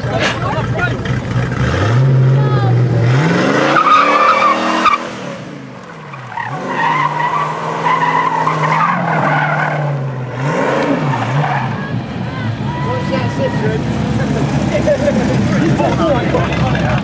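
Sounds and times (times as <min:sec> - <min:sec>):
sports car engine revving: 0:00.0 - 0:17.0
tyres squealing: 0:03.6 - 0:10.0.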